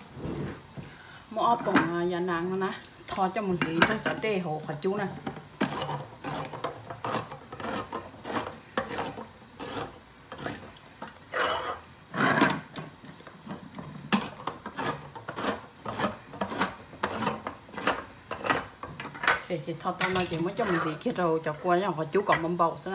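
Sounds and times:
can scraping clatter: 0:05.1 - 0:21.2.

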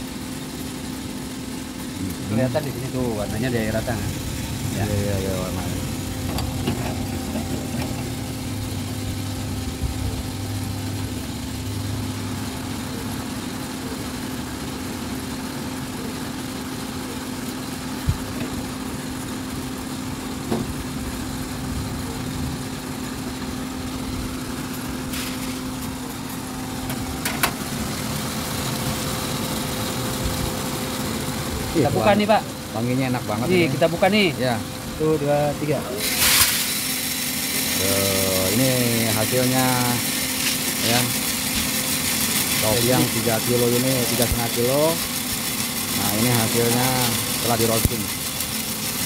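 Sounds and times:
coffee roaster machine hum: 0:00.0 - 0:49.0.

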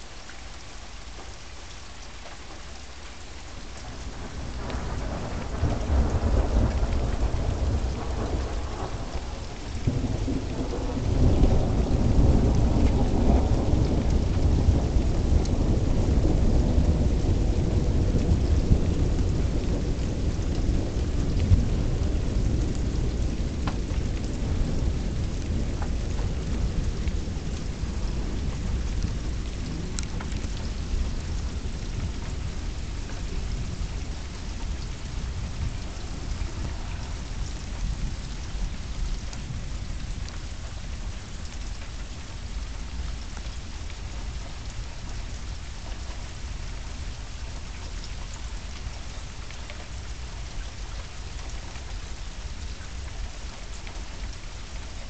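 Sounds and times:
steady rain falling: 0:00.0 - 0:55.0
thunder rumble: 0:03.9 - 0:50.2.

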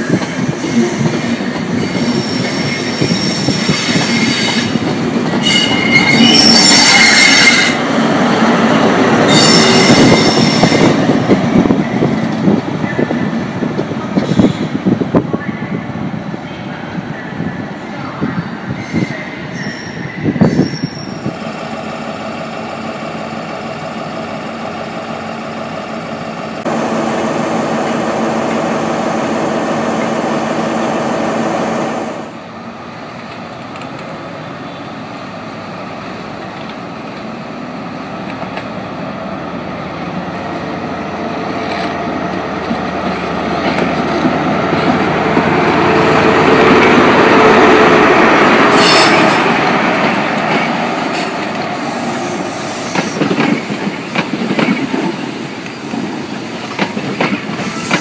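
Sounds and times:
diesel train engines humming: 0:15.6 - 0:58.0.

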